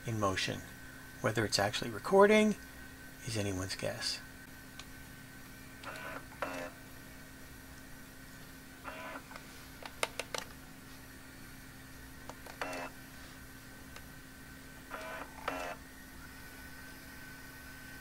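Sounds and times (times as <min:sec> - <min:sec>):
steady low hum: 0:00.0 - 0:18.0
camcorder control clicks: 0:05.8 - 0:06.6
tape transport mechanical bursts: 0:05.8 - 0:06.7, 0:08.9 - 0:09.3, 0:12.5 - 0:12.9, 0:14.9 - 0:15.8.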